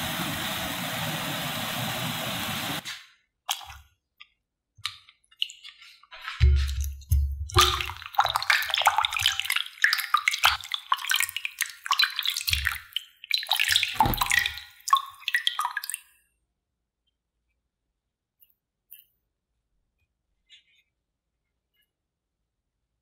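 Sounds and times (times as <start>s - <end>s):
water splashing in a bowl: 3.5s - 4.0s, 4.8s - 16.2s.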